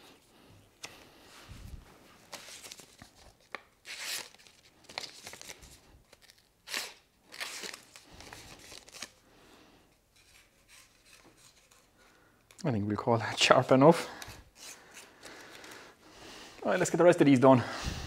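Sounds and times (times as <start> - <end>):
paper rustling: 0.8 - 9.2.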